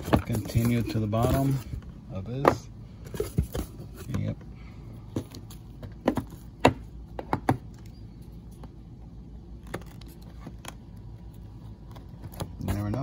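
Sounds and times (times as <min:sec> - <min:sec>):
cardboard boxes tapping and scraping: 0:00.0 - 0:04.4, 0:05.1 - 0:07.7, 0:11.8 - 0:13.0
low steady hum: 0:00.0 - 0:13.0.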